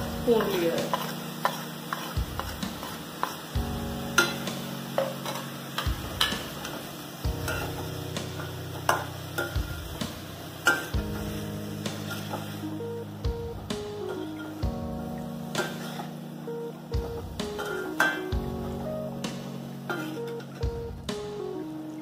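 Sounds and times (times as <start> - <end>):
frying sizzle: 0.0 - 22.0
metal spatula scraping pan: 0.2 - 3.5, 4.1 - 6.8, 7.4 - 9.6, 10.6 - 12.6, 15.6 - 16.2, 19.8 - 20.6.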